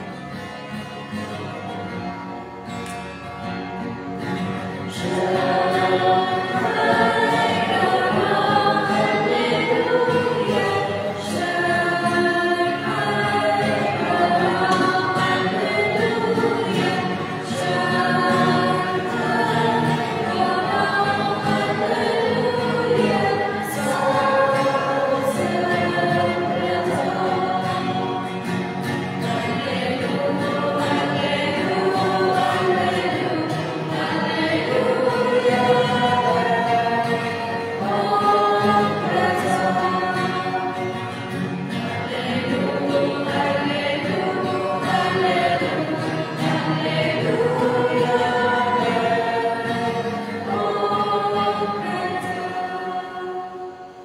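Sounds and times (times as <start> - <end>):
choir singing a hymn: 0.0 - 2.0, 3.6 - 54.0.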